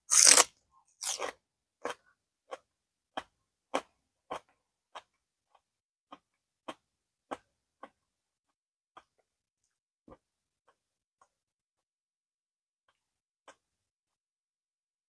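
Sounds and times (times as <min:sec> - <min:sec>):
person chewing food: 0:00.1 - 0:08.0, 0:09.0 - 0:09.3, 0:12.9 - 0:13.7.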